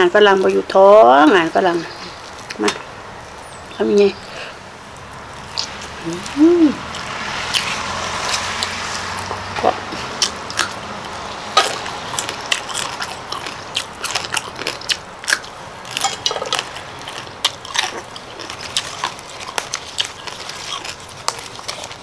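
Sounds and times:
person chewing crunchy vegetables: 0:04.9 - 0:22.0.

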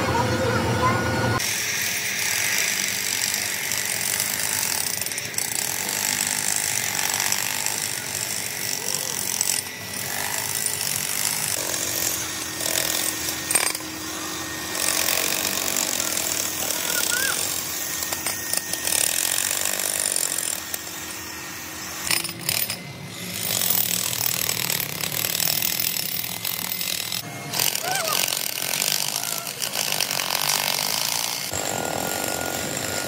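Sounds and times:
machinery harsh rasping: 0:00.0 - 0:33.0.

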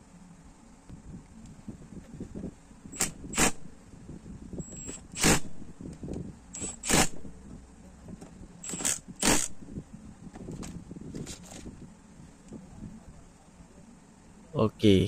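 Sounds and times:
hand ratchet zipping: 0:04.6 - 0:05.5, 0:06.5 - 0:07.3, 0:08.6 - 0:09.6.

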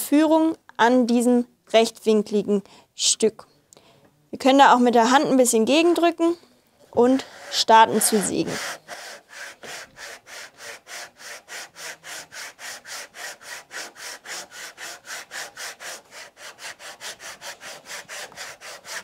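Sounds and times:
hand saw cutting wood: 0:07.0 - 0:19.0.

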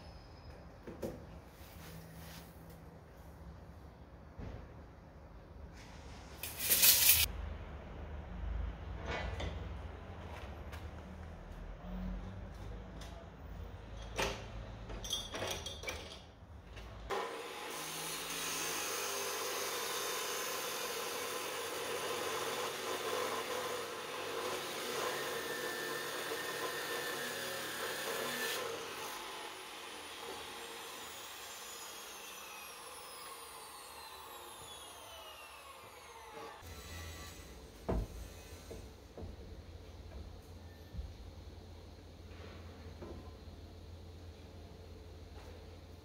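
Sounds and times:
chop saw grinding through steel: 0:17.1 - 0:37.6
saw disc winding down whine: 0:24.7 - 0:37.4.

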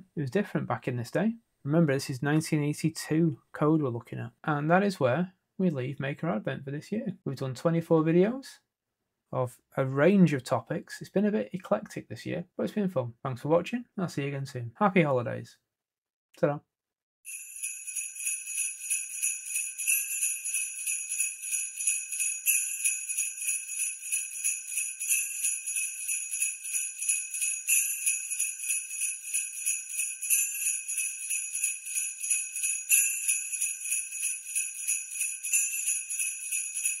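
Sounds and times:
sleigh bells jingling: 0:17.3 - 0:37.0.

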